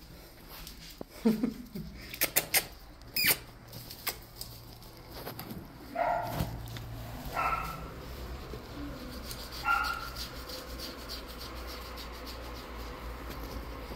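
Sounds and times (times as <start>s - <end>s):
dog yipping: 5.9s - 6.6s, 7.3s - 8.0s, 9.6s - 10.6s.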